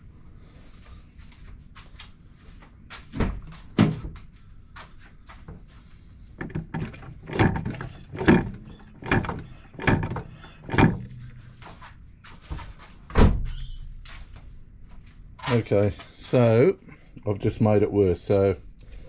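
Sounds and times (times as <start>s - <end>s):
brake pedal knocking: 6.4s - 11.4s.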